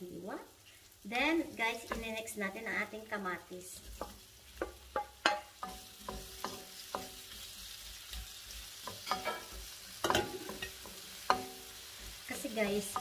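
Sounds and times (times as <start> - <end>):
faint frying sizzle: 0.0 - 13.0
wooden spoon knocking on wok: 1.8 - 2.2, 3.9 - 7.4, 8.8 - 11.7, 12.6 - 13.0.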